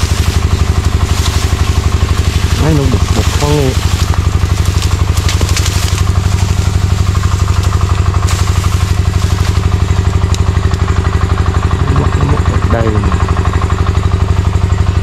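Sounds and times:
faint clicks and rustles: 0:00.0 - 0:10.9
small petrol engine running: 0:00.0 - 0:15.0.

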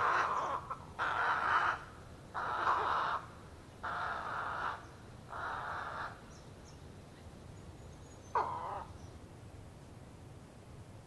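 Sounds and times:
ibis harsh croaking calls: 0:00.0 - 0:06.8, 0:08.0 - 0:09.1.

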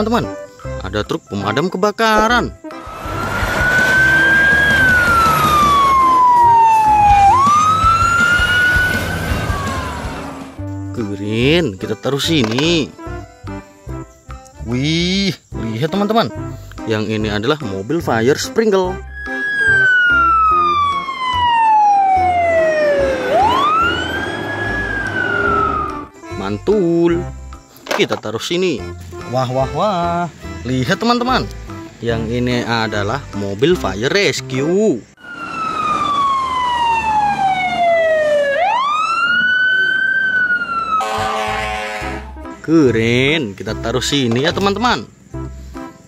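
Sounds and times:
engine and traffic rumble: 0:02.7 - 0:11.0, 0:19.1 - 0:26.2, 0:35.1 - 0:43.0
fire engine siren wailing: 0:02.8 - 0:10.6, 0:19.1 - 0:26.1, 0:35.2 - 0:42.3.

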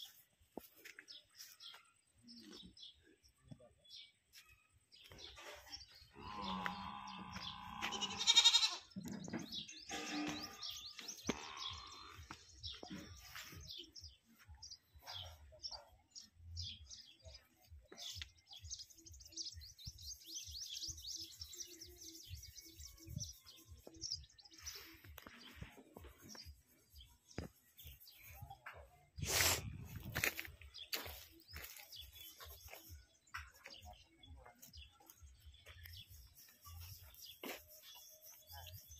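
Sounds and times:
small birds chirping: 0:00.0 - 0:38.9
animal bleating: 0:06.1 - 0:09.0, 0:11.3 - 0:12.3.

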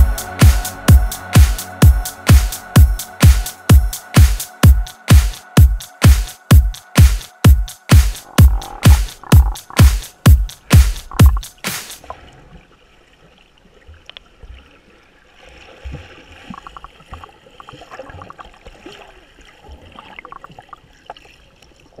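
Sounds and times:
underwater bubbling: 0:08.2 - 0:09.8, 0:10.6 - 0:14.9, 0:15.6 - 0:22.0
small underwater clicks: 0:14.0 - 0:14.3, 0:16.4 - 0:18.6, 0:19.9 - 0:21.8.

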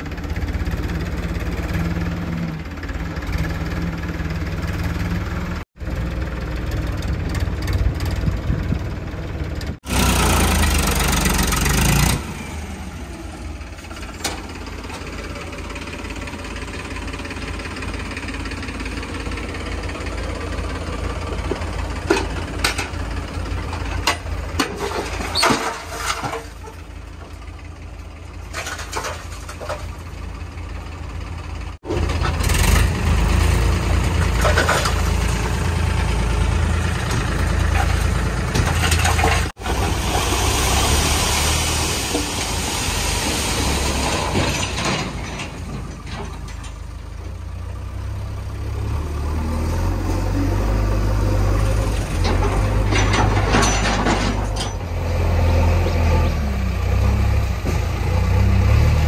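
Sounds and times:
diesel engines running: 0:00.0 - 0:59.0
soil pouring from trailer: 0:38.7 - 0:46.5.

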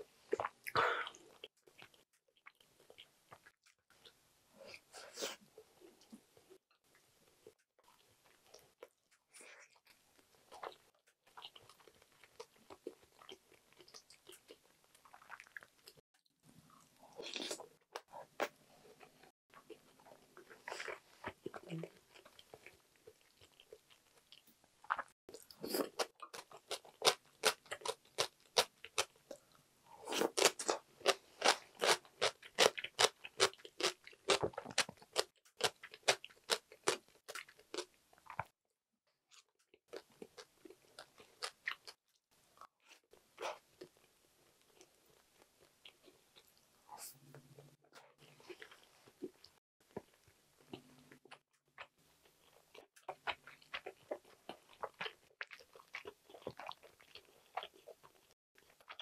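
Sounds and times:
crunchy chewing: 0:19.5 - 0:38.5, 0:42.6 - 0:59.0.

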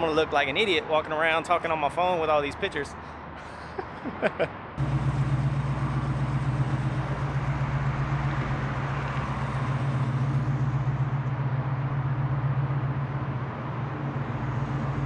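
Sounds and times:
car engine idling: 0:04.8 - 0:15.0.

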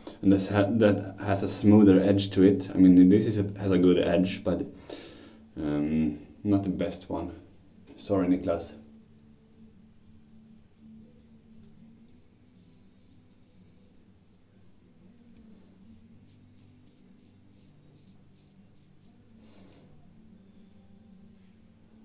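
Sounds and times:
razor scraping stubble: 0:10.2 - 0:19.3.

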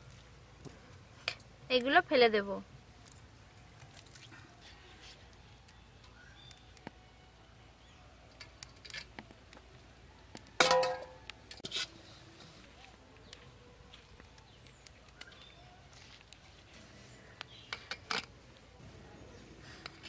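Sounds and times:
metal plate clank: 0:10.6 - 0:11.2.

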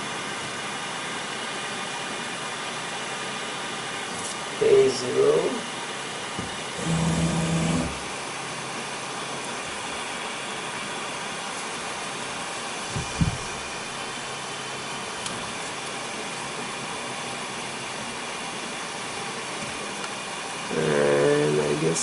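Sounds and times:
cooling fan whooshing: 0:00.0 - 0:22.0
low thump: 0:12.9 - 0:13.6.

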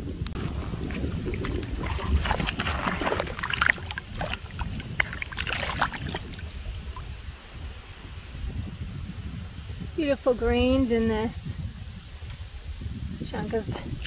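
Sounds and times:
low wind rumble on microphone: 0:00.0 - 0:14.0
river water splashing around hand: 0:00.4 - 0:07.2.

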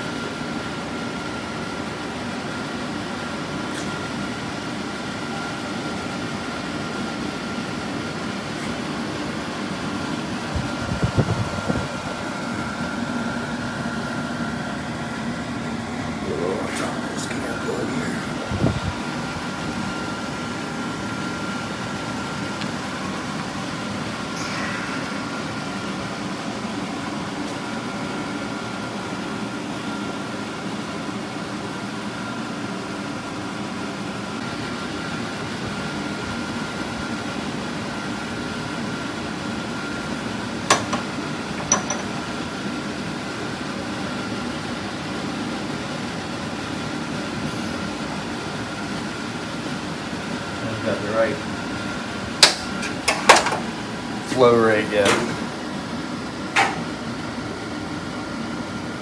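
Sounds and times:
ventilation fan hum: 0:00.0 - 0:59.0
faint high whine: 0:05.2 - 0:06.2.

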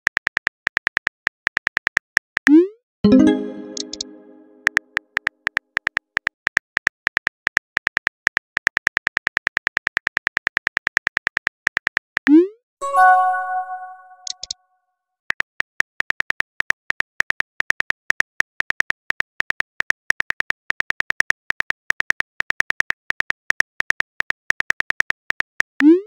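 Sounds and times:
short synthetic chime: 0:03.1 - 0:04.7, 0:12.8 - 0:14.4.

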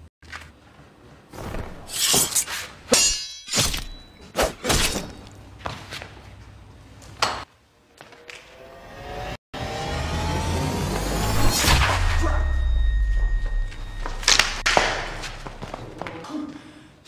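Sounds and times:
fight swishes and hits: 0:01.4 - 0:05.4.

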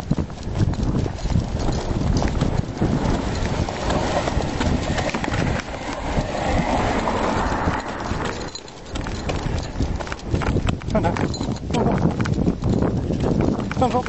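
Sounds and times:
footsteps jogging on concrete: 0:00.0 - 0:14.0
camera jostling: 0:00.4 - 0:12.8.

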